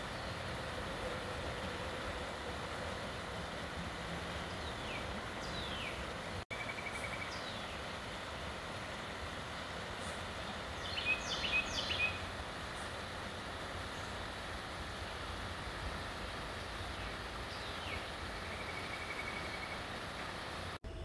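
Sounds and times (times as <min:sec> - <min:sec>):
birds chirping: 0:04.3 - 0:13.1, 0:16.1 - 0:20.8.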